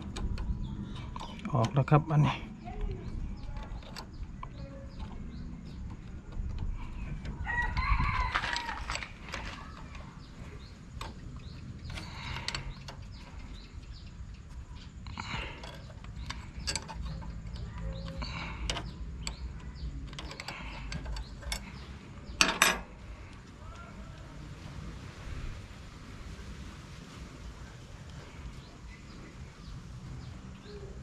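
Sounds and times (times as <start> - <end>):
rooster crowing: 7.4 - 9.0.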